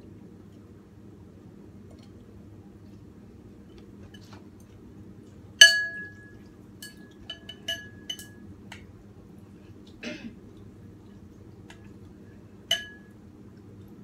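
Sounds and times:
utensils clinking on ceramic bowl: 0:05.6 - 0:08.5, 0:12.7 - 0:13.2.

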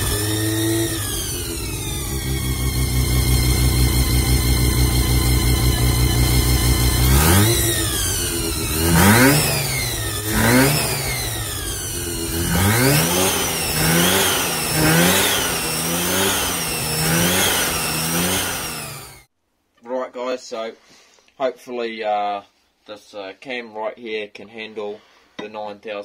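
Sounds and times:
car engine revving: 0:00.0 - 0:19.3
high whine of belt drive: 0:00.0 - 0:19.3.

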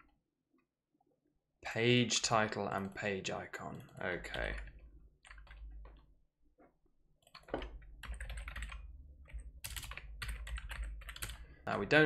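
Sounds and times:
keyboard typing: 0:03.6 - 0:06.1, 0:07.2 - 0:11.5.

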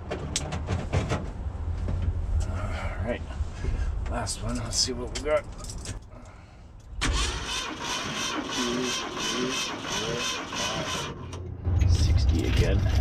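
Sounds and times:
starter motor cranking engine: 0:07.0 - 0:11.4.

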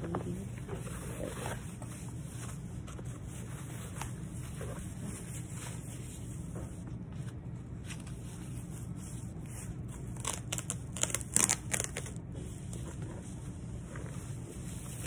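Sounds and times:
tissue paper rustling: 0:00.2 - 0:15.0.

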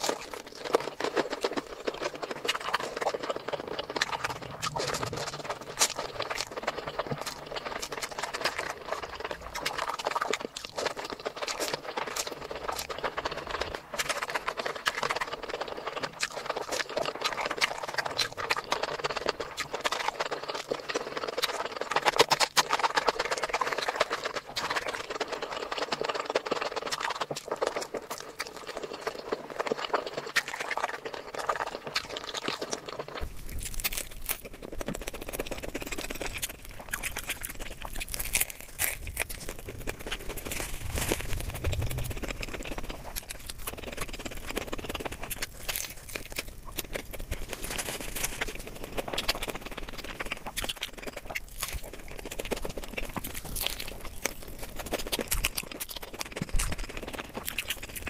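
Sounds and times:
wet chewing and mouth smacking: 0:00.0 - 0:58.0.

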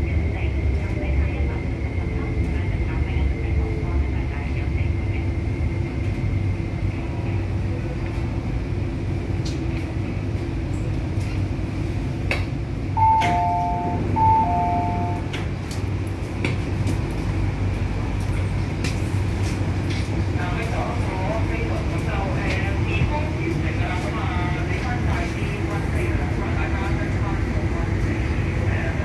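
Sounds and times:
train hum: 0:00.0 - 0:29.0
two-note door chime: 0:13.0 - 0:15.2.

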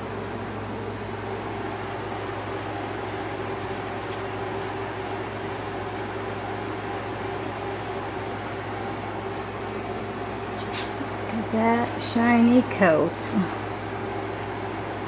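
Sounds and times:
mechanical hum: 0:00.0 - 0:15.0
brush swishing through dog coat: 0:01.6 - 0:09.0.

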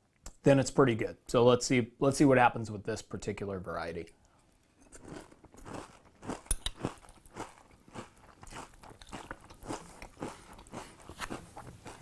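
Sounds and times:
chewing crunchy cereal: 0:04.8 - 0:12.0.

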